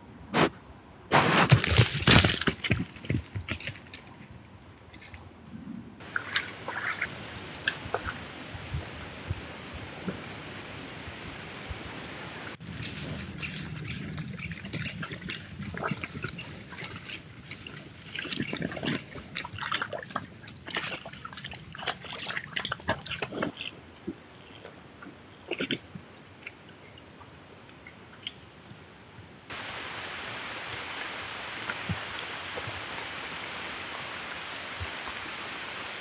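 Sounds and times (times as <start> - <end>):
wild boar splashing in mud: 1.3 - 4.0, 6.0 - 11.0, 12.5 - 27.0
steady rain: 6.0 - 14.7, 29.5 - 36.0.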